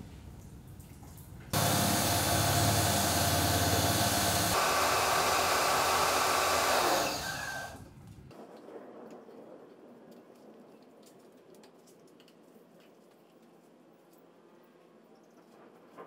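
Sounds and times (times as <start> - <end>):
pressure washer motor hum: 1.6 - 7.8
water jet hissing: 1.6 - 7.8.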